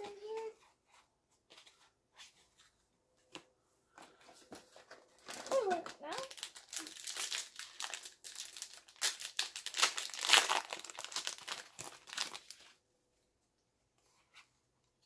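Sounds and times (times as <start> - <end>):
wrapper crinkling and tearing: 5.2 - 12.8.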